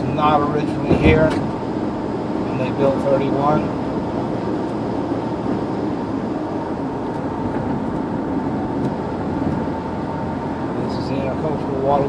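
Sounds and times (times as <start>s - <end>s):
car road noise from inside: 0.0s - 12.0s.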